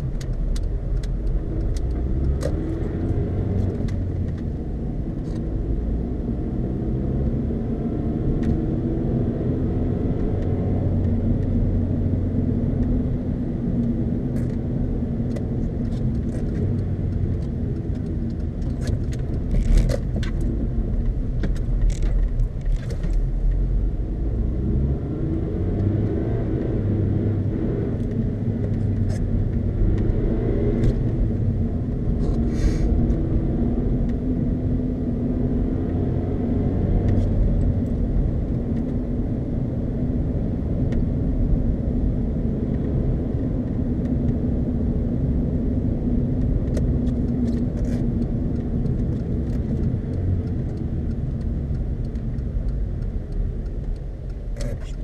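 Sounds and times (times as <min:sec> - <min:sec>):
sharp clicks and knocks: 0:00.0 - 0:02.8, 0:15.3 - 0:23.6, 0:46.4 - 0:55.0
car engine running: 0:36.8 - 0:55.0.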